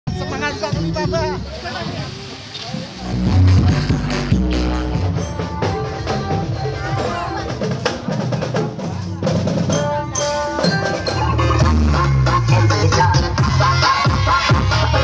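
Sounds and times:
music with drums and percussion: 0:03.0 - 0:15.0.

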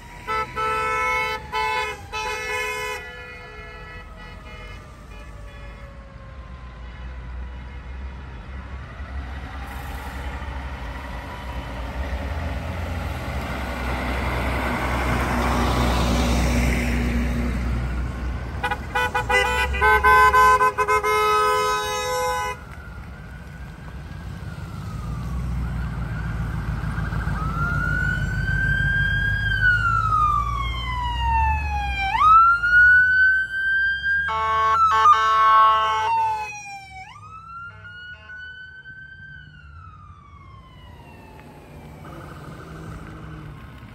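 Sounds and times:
siren wailing: 0:00.0 - 0:06.6, 0:18.6 - 0:43.9
fire truck driving past: 0:00.0 - 0:43.9
horn toots and blast: 0:00.2 - 0:05.9, 0:18.6 - 0:22.7, 0:34.3 - 0:36.5.

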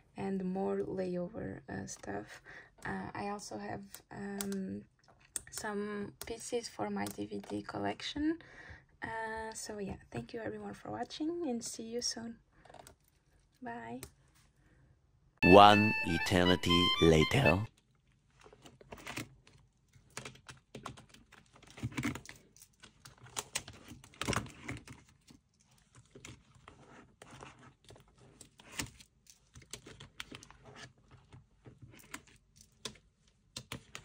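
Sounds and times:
small objects clicking and rustling: 0:18.4 - 0:26.4, 0:27.2 - 0:34.0.

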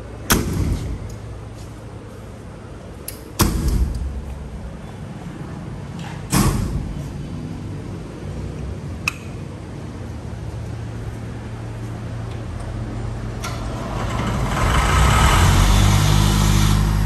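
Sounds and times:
metal doors banging shut: 0:00.3 - 0:01.2, 0:03.3 - 0:04.4, 0:06.0 - 0:07.2.

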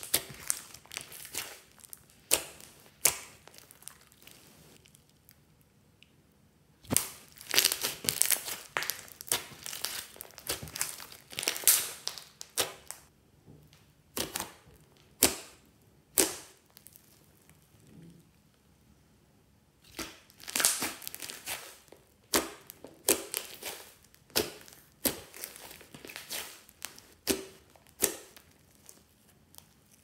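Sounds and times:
slime popping: 0:00.0 - 0:05.1, 0:06.8 - 0:13.1, 0:19.8 - 0:29.8
slime crackling and squelching: 0:00.0 - 0:05.6, 0:06.8 - 0:13.1, 0:14.1 - 0:18.4, 0:19.8 - 0:30.0.

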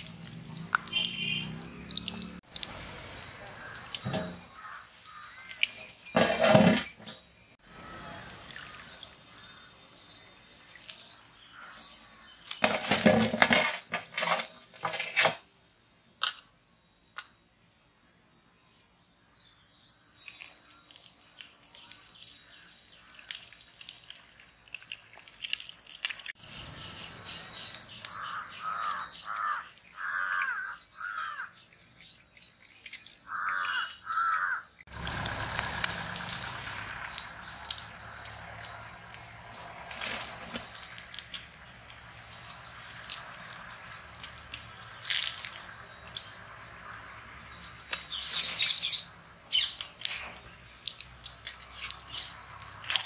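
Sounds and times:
hot oil sizzling: 0:00.0 - 0:07.2, 0:34.9 - 0:47.4
crows cawing: 0:03.5 - 0:05.8, 0:28.1 - 0:31.6, 0:33.2 - 0:34.7.

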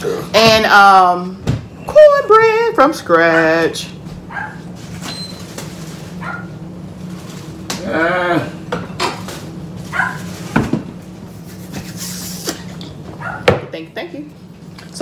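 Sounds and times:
steady hum: 0:00.0 - 0:15.0
dog yipping: 0:04.3 - 0:04.6, 0:06.2 - 0:06.5, 0:09.9 - 0:10.3, 0:13.2 - 0:13.5.

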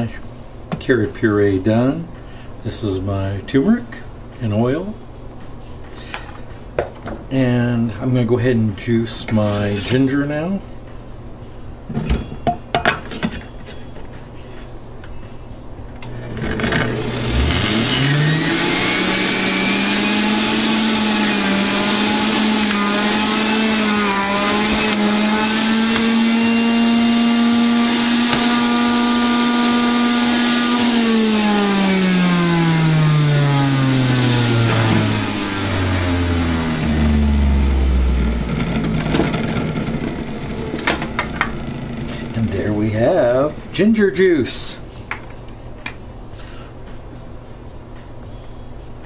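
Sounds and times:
juicer motor whine: 0:16.0 - 0:42.5.

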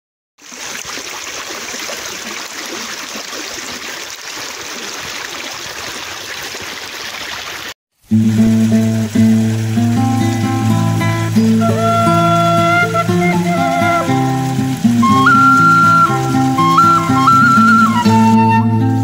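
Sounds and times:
stream rushing: 0:00.4 - 0:19.0
plucked string music: 0:08.1 - 0:19.0.

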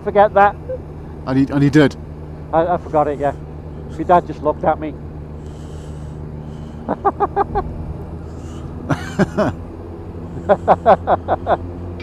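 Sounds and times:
motorcycle engine drone: 0:00.0 - 0:12.0
person laughing: 0:06.8 - 0:09.6, 0:10.3 - 0:11.6.

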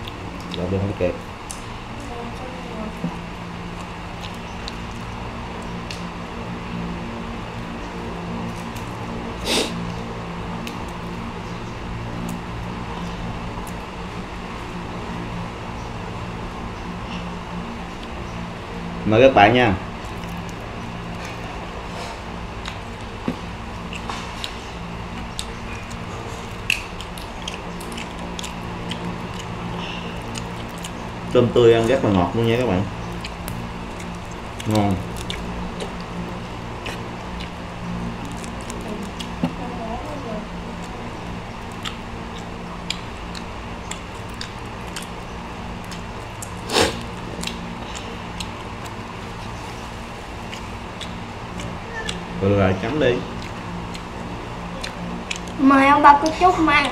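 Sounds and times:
chewing: 0:00.0 - 0:00.7, 0:02.3 - 0:06.1, 0:20.0 - 0:56.9
steady low hum: 0:00.0 - 0:56.9
prawn shells clicking and crackling: 0:22.6 - 0:39.4.

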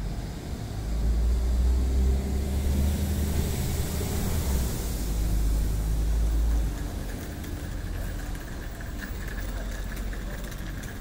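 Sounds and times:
vehicle engine idling hum: 0:03.3 - 0:11.0.

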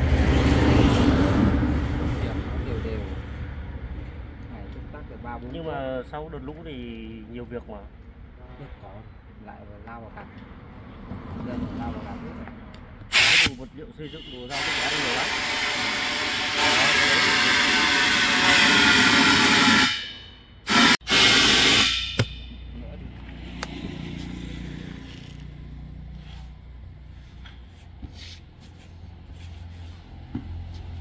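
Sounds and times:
compressed air hissing: 0:13.1 - 0:13.7, 0:14.5 - 0:20.1, 0:20.7 - 0:22.5
short air blasts: 0:13.1 - 0:22.7.

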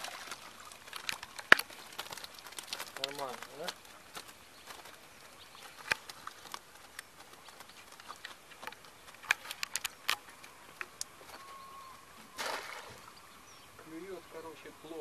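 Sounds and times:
fish flapping in a net: 0:00.0 - 0:11.3.

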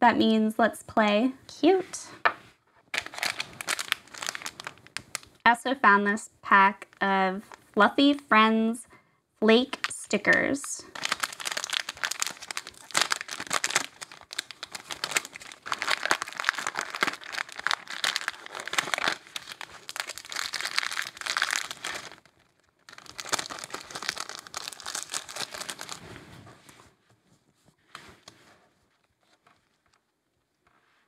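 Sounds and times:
plastic bag crinkling: 0:02.9 - 0:05.4, 0:09.7 - 0:26.2.

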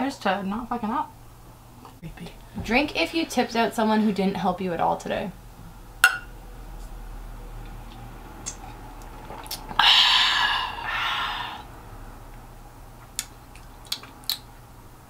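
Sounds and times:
person breathy noise: 0:09.8 - 0:11.7.

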